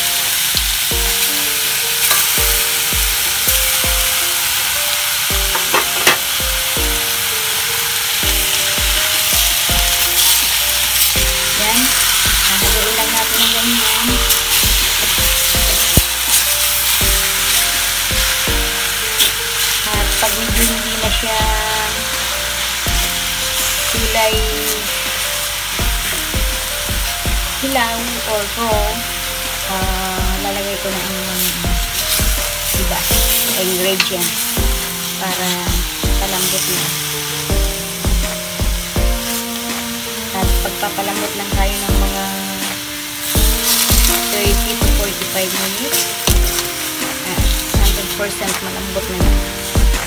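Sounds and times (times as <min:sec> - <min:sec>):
meat sizzling in hot oil: 0:00.0 - 0:50.0
spatula scraping and knocking metal: 0:05.4 - 0:06.3.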